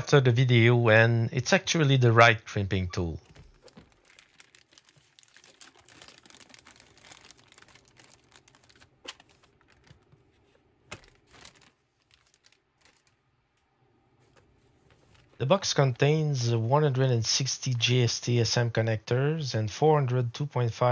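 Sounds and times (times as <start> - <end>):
plastic bag crinkling: 3.2 - 16.0.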